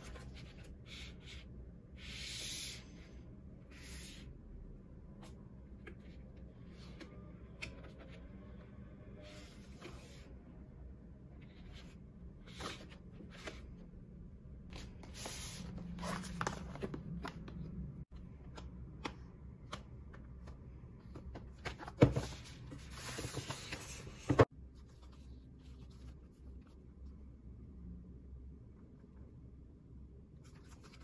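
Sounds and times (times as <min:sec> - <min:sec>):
rustling cardboard and paper: 0:21.3 - 0:26.2.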